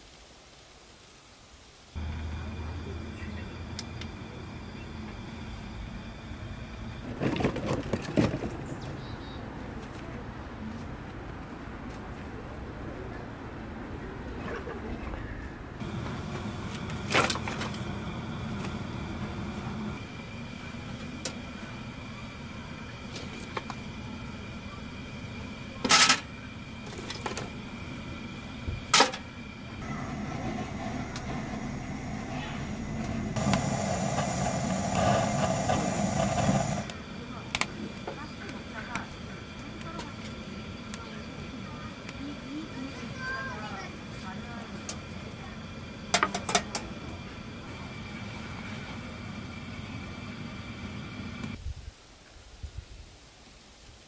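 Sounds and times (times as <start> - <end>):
faint outdoor background: 0.0 - 54.0
scrape in stove firebox: 29.8 - 36.9.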